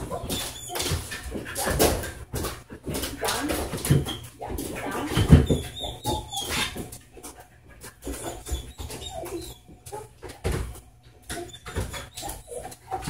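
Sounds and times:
dog whining: 0.0 - 1.8, 4.0 - 7.0, 8.0 - 10.1, 11.3 - 13.0.

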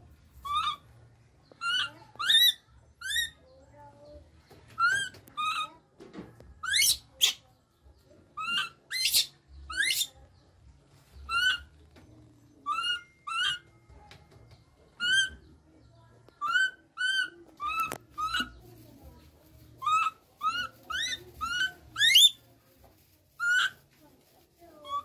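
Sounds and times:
baby monkey crying: 1.6 - 3.4, 8.4 - 10.1, 11.3 - 11.7, 12.7 - 13.6, 15.0 - 15.4, 16.4 - 18.4, 19.8 - 22.4.

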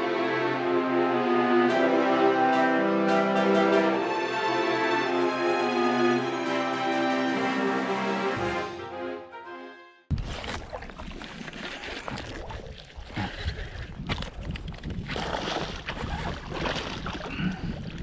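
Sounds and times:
water lapping and splashing: 10.1 - 18.0
wind on microphone: 13.1 - 18.0.

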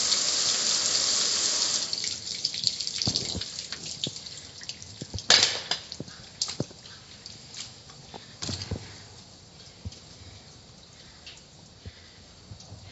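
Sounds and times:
water spray hissing on metal grill: 0.0 - 5.1
water dripping with small clicks: 1.9 - 12.9.

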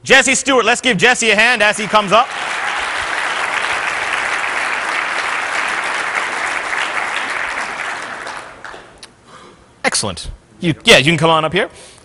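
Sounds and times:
audience applauding: 1.5 - 9.0.

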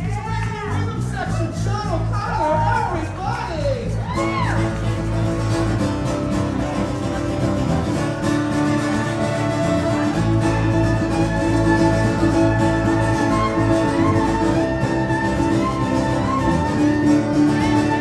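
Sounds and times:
strummed guitars: 0.0 - 18.0
fiddle bowing: 4.2 - 18.0.

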